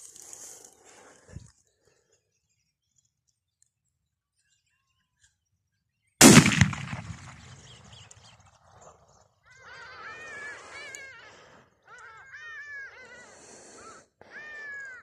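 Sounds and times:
rifle shot: 0:06.2 - 0:08.1.

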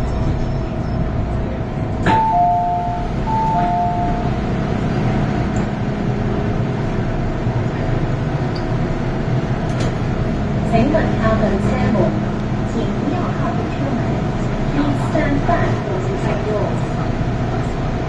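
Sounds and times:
train carriage rumble: 0:00.0 - 0:18.0.

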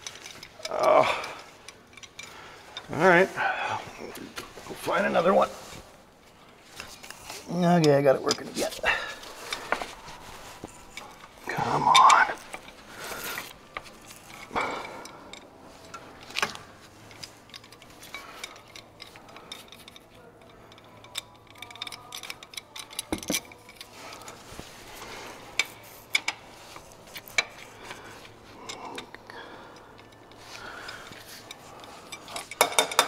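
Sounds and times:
hand ratchet clicking: 0:00.0 - 0:02.9, 0:16.3 - 0:24.3
metal tools clinking: 0:00.0 - 0:03.2, 0:06.7 - 0:33.0.

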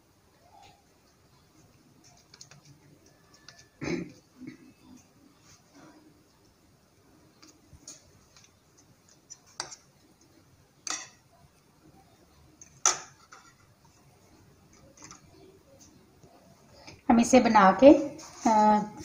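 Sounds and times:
metal spoon clinking bowls: 0:10.8 - 0:11.2.

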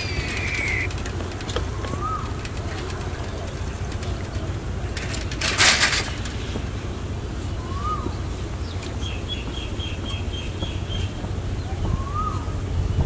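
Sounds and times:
short high bird chirps: 0:00.0 - 0:00.9
bird whistle rising and falling: 0:00.0 - 0:01.0, 0:07.6 - 0:08.2, 0:11.9 - 0:12.5
loud short rustling: 0:00.0 - 0:07.0
steady low rumble: 0:00.0 - 0:13.0.

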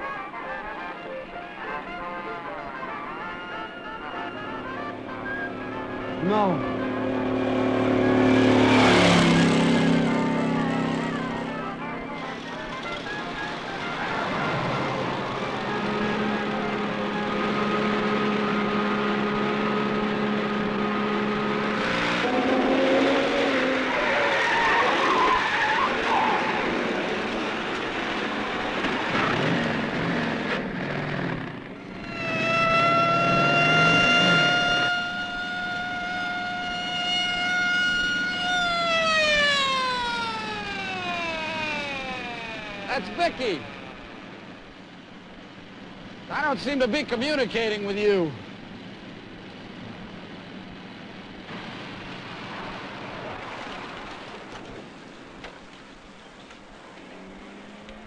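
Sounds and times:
road noise: 0:00.0 - 0:58.0
high siren tone: 0:01.9 - 0:19.1, 0:31.8 - 0:44.8
vehicle engine running hard: 0:03.8 - 0:54.7.

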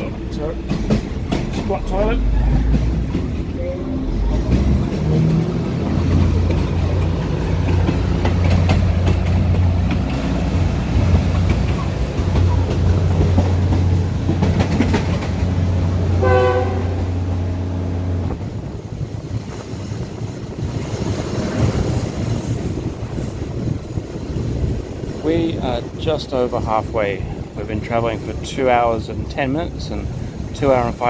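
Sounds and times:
wheels clacking over rail joints: 0:00.0 - 0:16.8
train carriage rumbling and rattling: 0:00.0 - 0:31.0
train horn blast: 0:16.2 - 0:17.2.

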